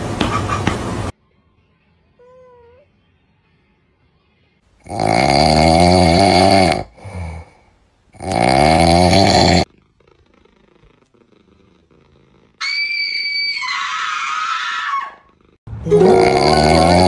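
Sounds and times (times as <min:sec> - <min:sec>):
loud snoring: 0:04.8 - 0:12.6, 0:15.3 - 0:17.0.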